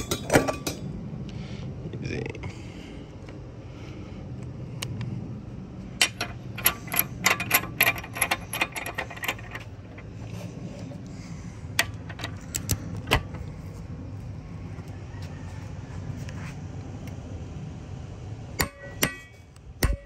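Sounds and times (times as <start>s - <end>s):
metallic wrench clicks: 6.0s - 10.0s.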